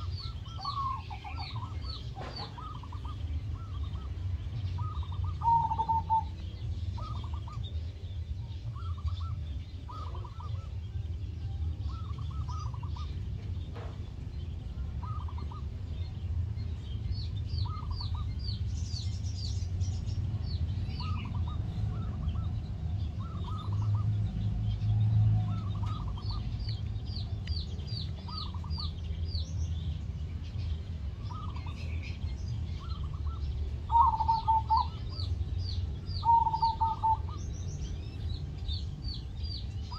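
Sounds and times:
doves cooing: 0.0s - 10.9s, 11.8s - 14.1s, 14.8s - 15.9s, 17.6s - 18.6s, 20.8s - 29.0s, 31.1s - 32.0s, 32.8s - 37.6s
small birds chirping: 0.0s - 39.9s
steady low rumble: 0.0s - 39.9s.

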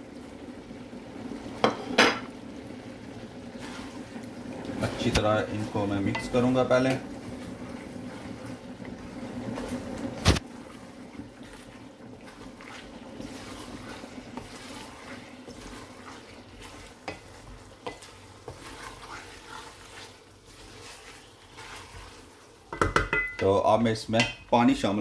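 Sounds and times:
frying sizzle: 0.0s - 25.0s
spatula scraping a pan: 3.6s - 9.9s, 10.6s - 23.0s
spatula knocking on pan: 22.7s - 23.4s.

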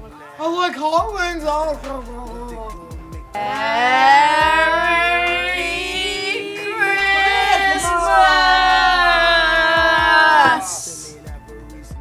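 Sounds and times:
person singing long notes: 3.3s - 11.1s.

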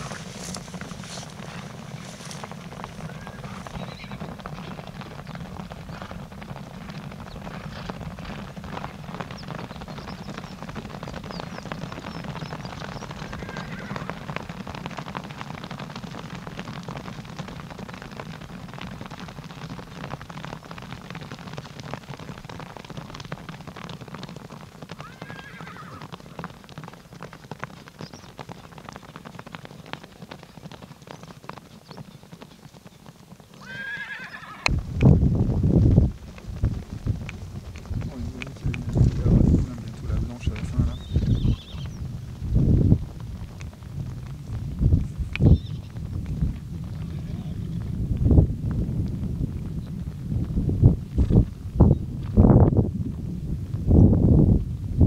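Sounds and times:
horses hoofbeats: 0.0s - 55.0s
horse whinnying: 3.0s - 4.4s, 13.2s - 14.2s, 25.0s - 26.1s, 33.6s - 34.7s, 47.1s - 47.7s.

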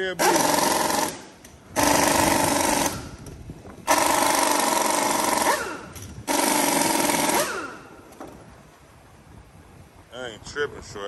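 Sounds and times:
impact wrench hammering: 0.2s - 3.3s, 3.9s - 8.3s.

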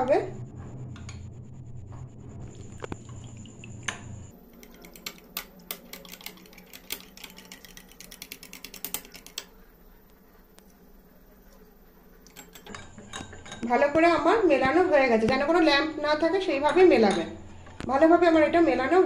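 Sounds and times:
low background hum: 0.0s - 19.0s
fork clicking against glass bowl: 4.6s - 9.5s.

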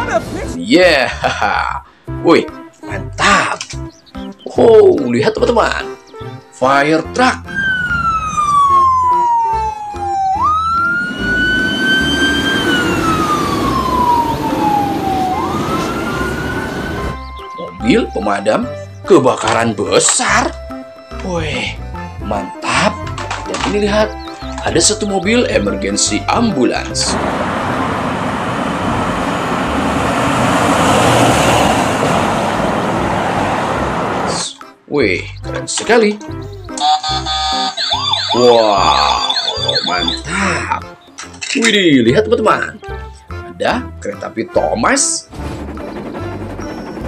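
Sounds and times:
fire truck siren wailing: 7.4s - 17.6s, 27.1s - 34.3s, 36.8s - 40.3s
engine and traffic rumble: 7.5s - 17.6s, 26.4s - 34.5s.

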